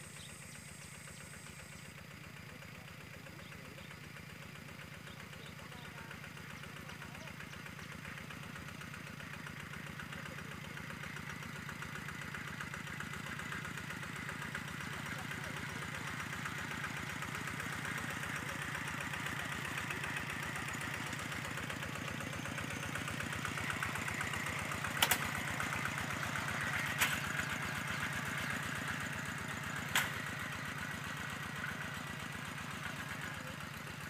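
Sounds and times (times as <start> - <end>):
walking tractor engine running: 0.0 - 34.0
sharp clicks: 25.0 - 25.5, 29.9 - 30.3.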